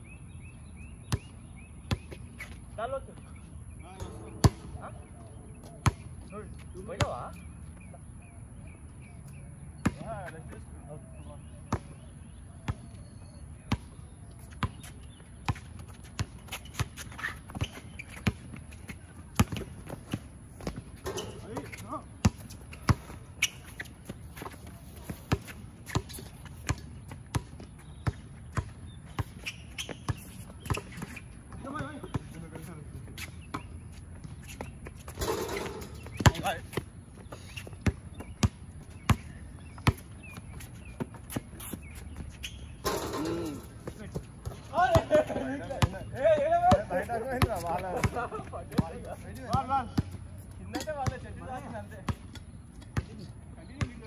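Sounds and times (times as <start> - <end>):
basketball bouncing on hard court: 4.0 - 4.8, 15.5 - 18.7, 19.4 - 32.3, 35.0 - 50.2, 53.8 - 54.0.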